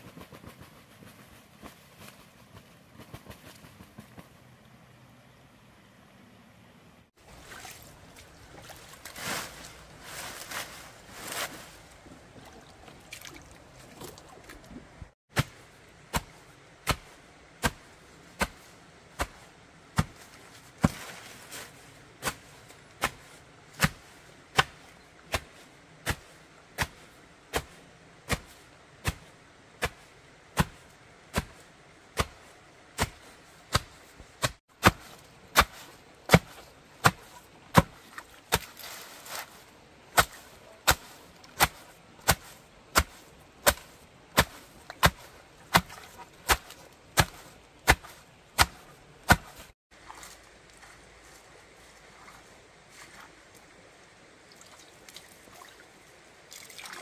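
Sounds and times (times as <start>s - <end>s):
sharp chopping strikes: 15.3s - 18.6s, 23.0s - 25.5s, 30.6s - 31.6s, 33.0s - 38.7s, 40.2s - 49.7s.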